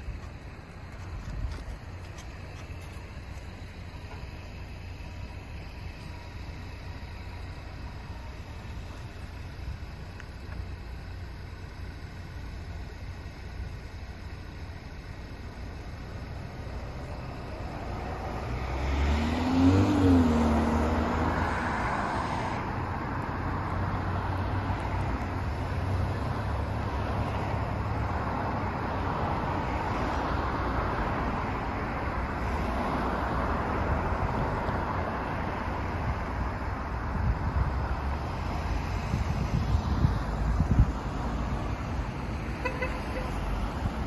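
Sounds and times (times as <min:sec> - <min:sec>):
cars passing: 0:00.0 - 0:44.0
steady traffic hum: 0:00.0 - 0:44.0
vehicle engine accelerating: 0:15.4 - 0:44.0.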